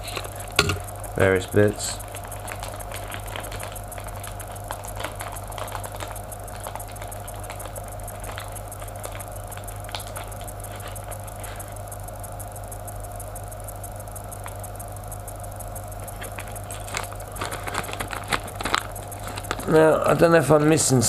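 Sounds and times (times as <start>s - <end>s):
low electrical hum: 0.0s - 21.0s
plastic bag crinkling: 1.7s - 11.6s, 16.1s - 20.9s.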